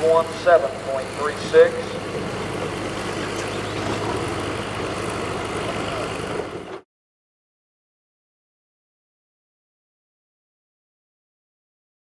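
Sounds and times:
diesel truck engine idling: 0.0 - 6.8.

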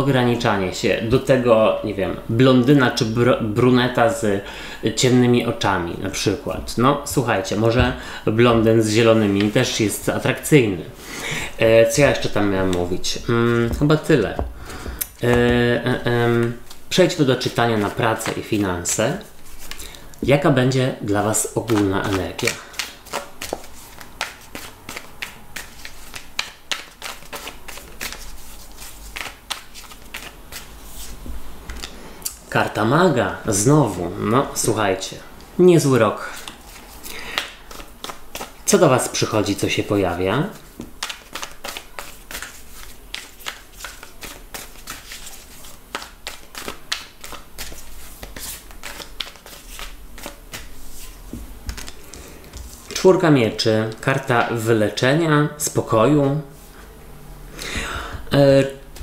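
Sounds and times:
cards being shuffled: 8.5 - 10.4, 11.8 - 20.1, 21.2 - 32.0, 36.3 - 39.6, 40.5 - 53.1.

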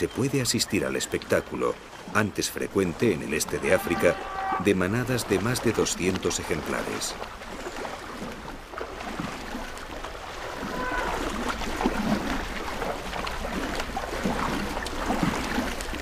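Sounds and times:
elephants splashing in water: 0.0 - 16.0
flowing river water: 0.0 - 16.0.

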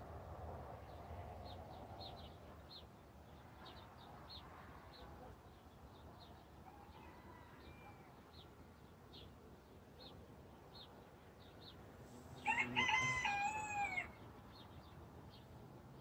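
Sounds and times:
rooster crowing: 12.4 - 14.2.

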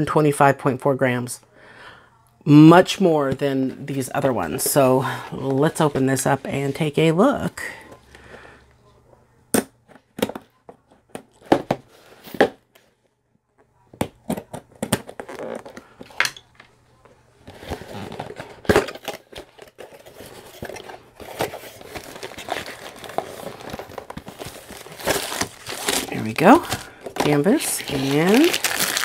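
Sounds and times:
packaging crinkling: 17.5 - 29.0.

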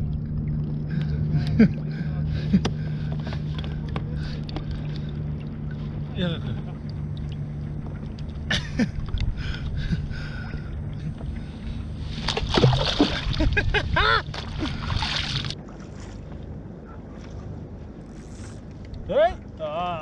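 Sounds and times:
hand splashing through water: 12.1 - 13.6, 14.3 - 15.6.

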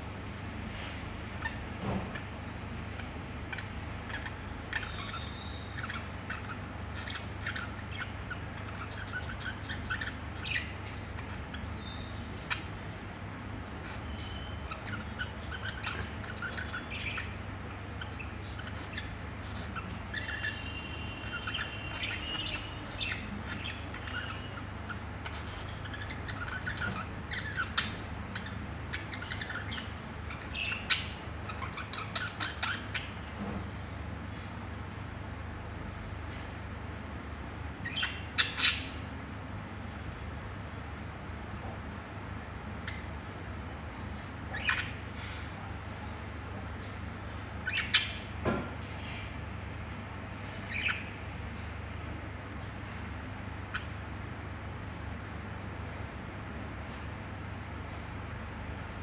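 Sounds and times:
budgerigars chattering and warbling: 0.8 - 13.0, 13.6 - 33.4, 37.7 - 39.1, 42.6 - 49.4, 50.5 - 51.3, 52.5 - 54.2.

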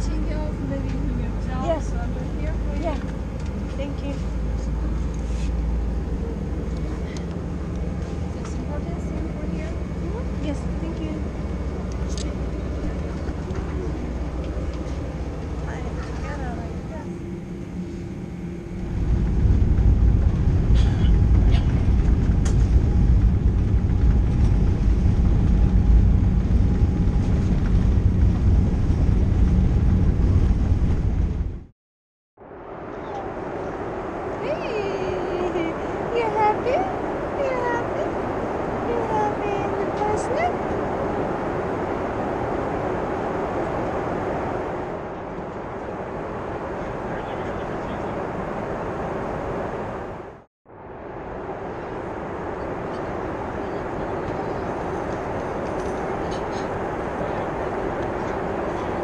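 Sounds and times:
jet engines rumbling: 0.0 - 31.7, 32.4 - 59.0.

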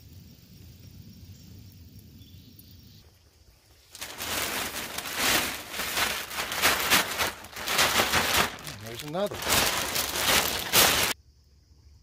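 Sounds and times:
faint outdoor background: 0.0 - 12.0
plastic bag crinkling: 3.9 - 11.2.

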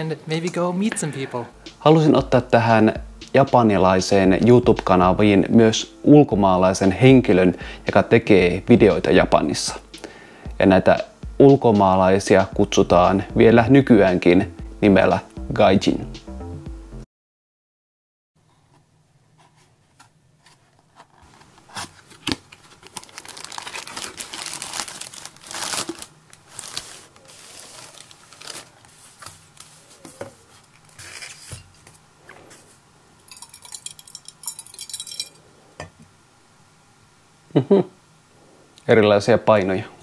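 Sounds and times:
styrofoam block handled: 19.7 - 31.7
packaging tearing and crinkling: 21.2 - 29.7.

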